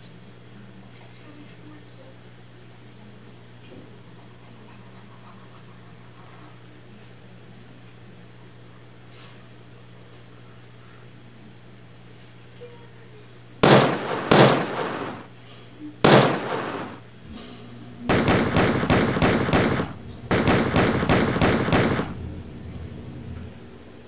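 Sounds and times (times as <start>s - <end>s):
faint steady hum: 0.0s - 24.0s
single gunshots: 13.6s - 15.3s, 16.0s - 17.0s, 18.1s - 22.2s
automatic gunfire bursts: 13.6s - 15.4s, 16.0s - 17.0s, 18.1s - 22.2s.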